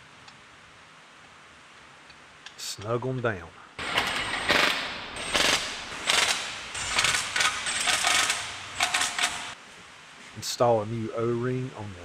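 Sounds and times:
ratchet wrench clicking: 3.9s - 9.6s.

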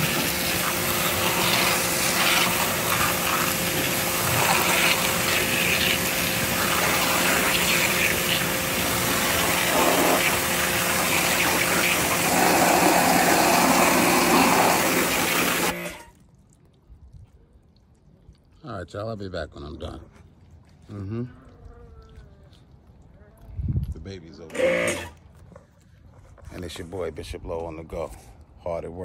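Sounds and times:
water jet hissing against siding: 0.0s - 16.0s
pressure washer machine hum: 0.0s - 16.1s, 24.5s - 25.2s.

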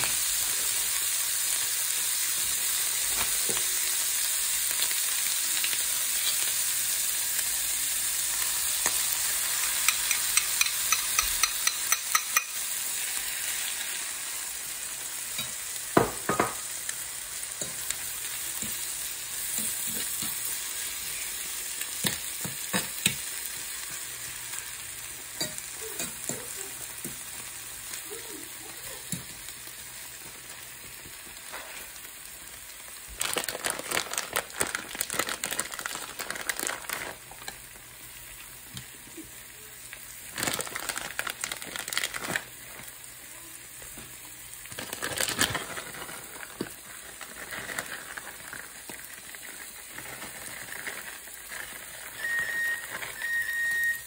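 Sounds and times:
omelet sizzling in a frying pan: 0.0s - 54.0s
plastic bag crinkling: 32.8s - 37.7s, 40.2s - 43.0s, 44.6s - 53.3s.

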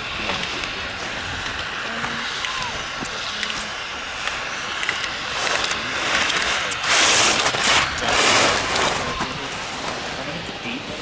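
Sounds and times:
skis scraping on snow: 0.0s - 10.9s.

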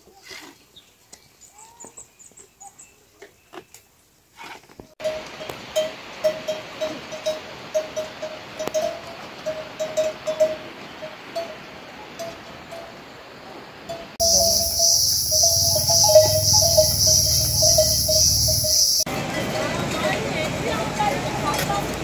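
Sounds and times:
livestock bell clanking: 5.0s - 11.6s, 13.9s - 19.1s
hooves clattering on stones: 14.2s - 19.0s.

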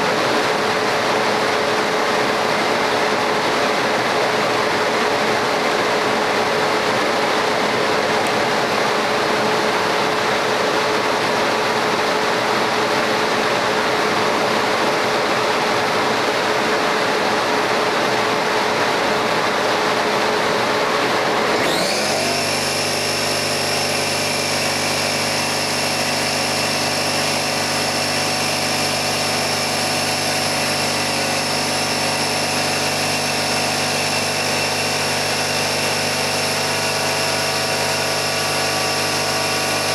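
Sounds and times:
rising whine: 20.7s - 39.9s
engraving machine whirring: 21.3s - 39.9s.

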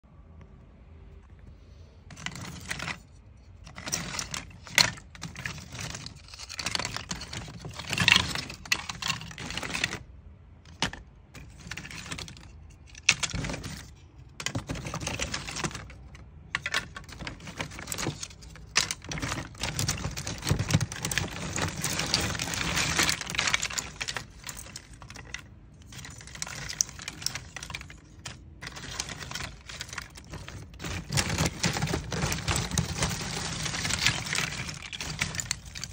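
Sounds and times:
wood chips clattering and rustling: 2.1s - 10.1s, 10.7s - 35.9s.

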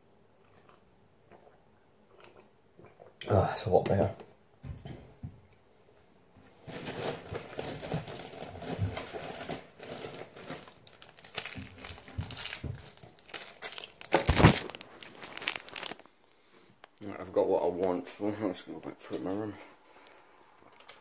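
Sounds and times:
snack packets rustling: 6.6s - 16.3s.

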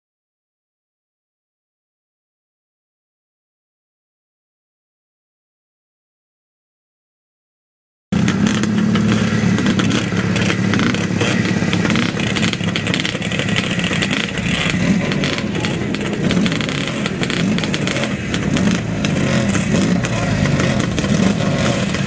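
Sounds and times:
motorcycle engines revving: 8.2s - 22.0s.

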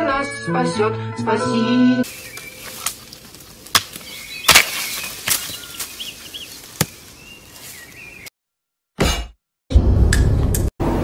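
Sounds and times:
birds chirping faintly: 2.0s - 8.3s
knife chopping sapling: 2.2s - 6.0s, 6.7s - 7.1s.

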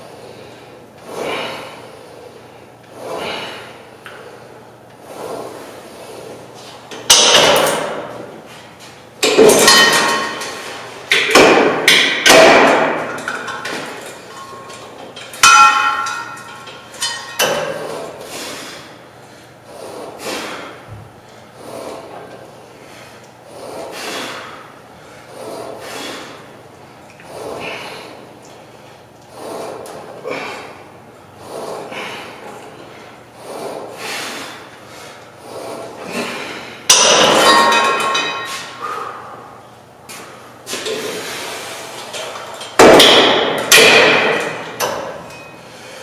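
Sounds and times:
heavy breathing: 0.0s - 6.8s, 17.7s - 36.9s, 38.4s - 42.1s, 45.6s - 46.0s
weight plates clanking: 9.2s - 18.2s, 36.2s - 39.1s.

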